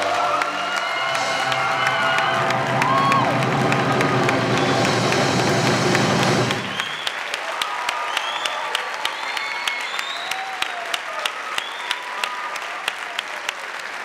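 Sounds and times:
audience applauding: 0.0s - 14.0s
whoops and whistles: 6.6s - 7.3s, 7.9s - 10.8s, 11.5s - 12.3s.

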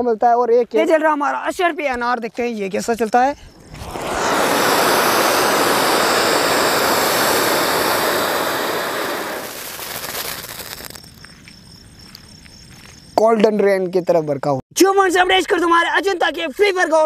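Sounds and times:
firework fountain hissing: 3.5s - 11.1s.

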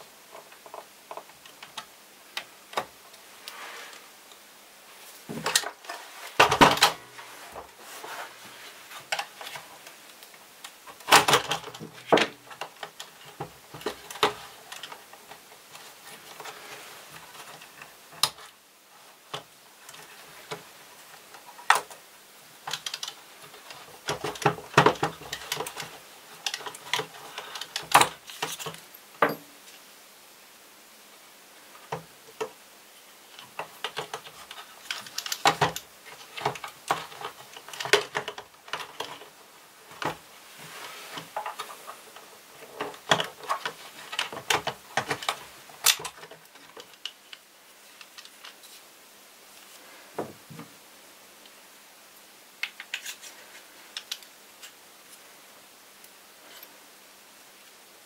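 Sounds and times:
plastic parts clicking and rattling: 9.0s - 18.6s, 22.6s - 29.4s, 33.3s - 40.2s, 41.1s - 48.7s, 53.9s - 54.8s.

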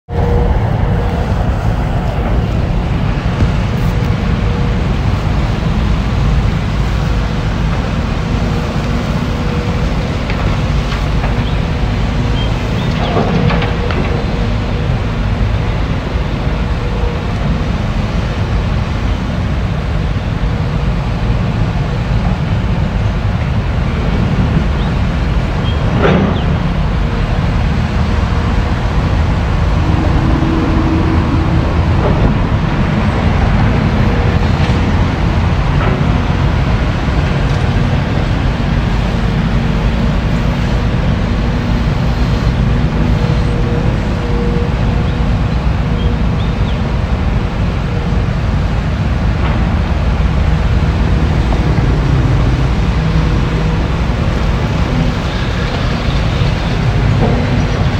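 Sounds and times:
excavator diesel engine running: 0.1s - 57.9s.

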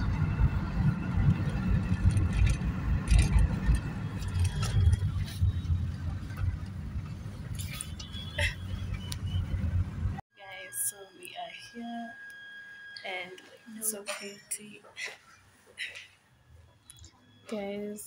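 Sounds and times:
car road and engine rumble: 0.0s - 11.2s.

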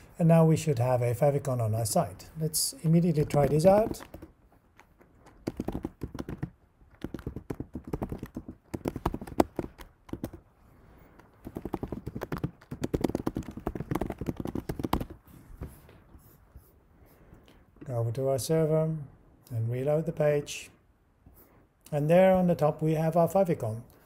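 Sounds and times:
keyboard key clicks: 3.3s - 10.4s.

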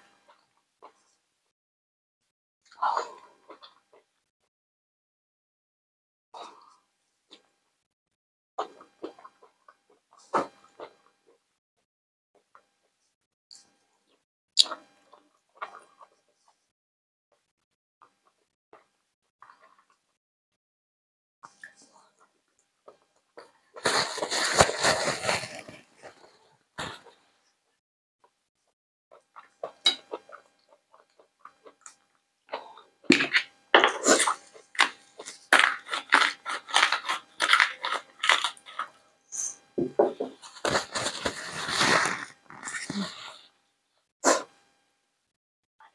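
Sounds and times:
chewing food: 13.6s - 16.2s, 18.0s - 20.2s, 29.1s - 39.0s
gloves and napkin crackling: 23.8s - 27.0s, 40.4s - 43.4s.

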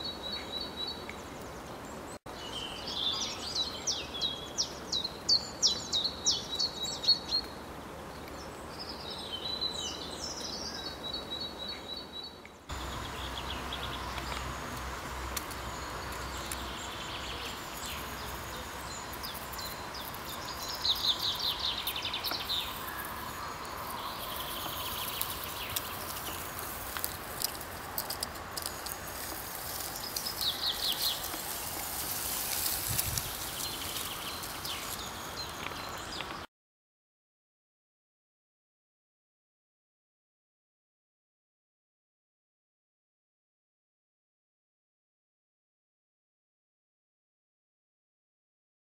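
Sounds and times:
small birds chirping: 0.0s - 36.5s
steady background hiss: 0.1s - 36.4s.

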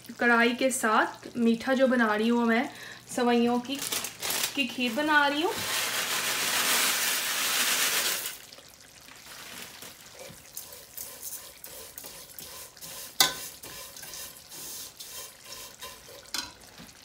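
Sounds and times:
liquid hissing in hot pot: 5.5s - 8.4s, 10.6s - 16.3s
spoon scraping in pot: 10.6s - 16.6s.

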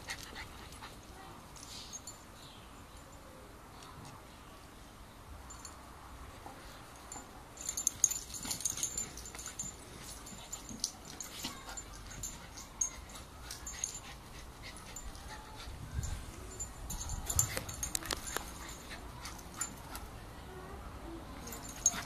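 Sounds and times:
clicks and rustles: 16.9s - 20.1s.

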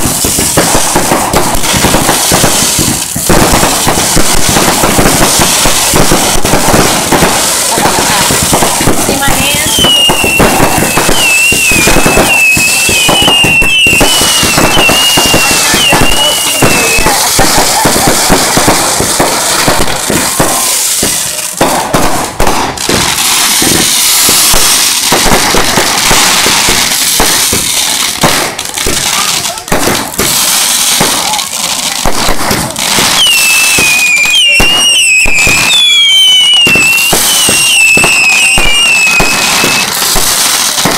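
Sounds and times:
fireworks bangs and crackles: 0.0s - 40.9s
high wavering firework whistle: 8.2s - 17.4s, 32.9s - 40.8s.

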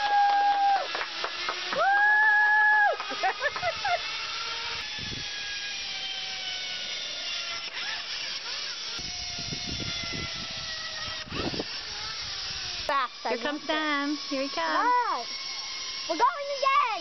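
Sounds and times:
zipline pulleys whining on cable: 0.0s - 17.0s
low wind buffeting: 9.0s - 12.9s.

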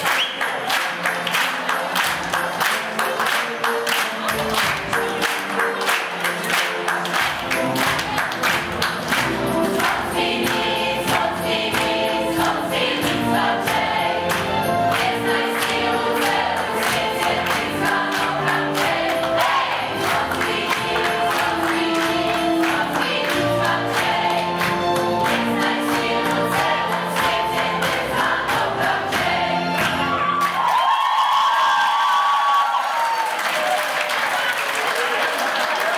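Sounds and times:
audience clapping along: 0.0s - 35.9s
group of young voices singing: 9.2s - 30.1s.

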